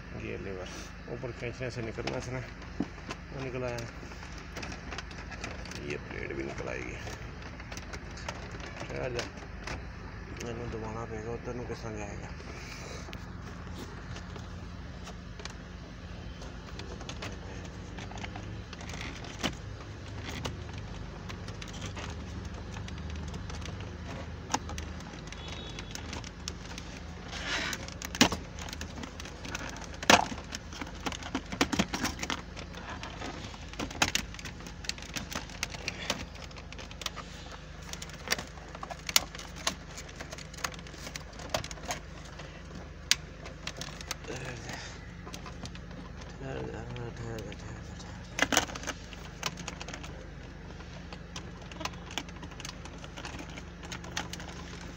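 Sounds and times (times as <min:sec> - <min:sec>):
steady low hum: 0:00.0 - 0:54.9
plastic trim clicking and rattling: 0:13.0 - 0:54.9.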